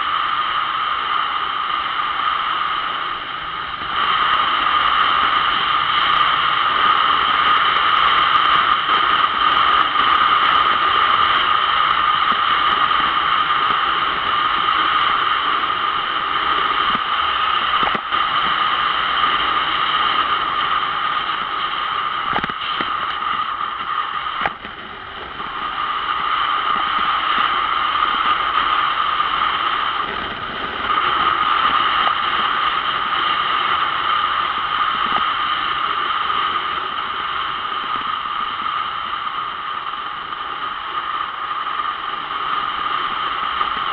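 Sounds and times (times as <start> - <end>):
motorcycle road and engine noise: 0.0 - 43.9
wind rushing over microphone: 0.0 - 43.9.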